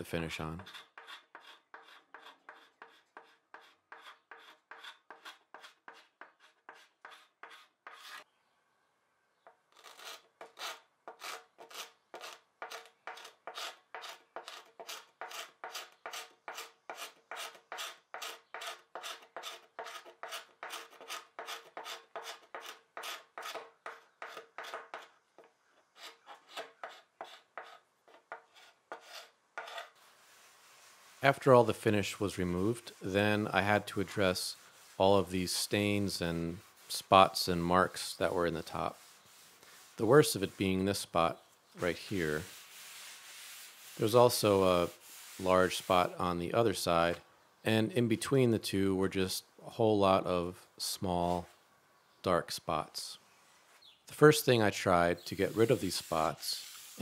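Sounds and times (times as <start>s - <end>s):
hand scraper scraping wood: 0.6s - 8.3s, 9.7s - 41.0s, 41.8s - 46.3s, 55.2s - 57.0s.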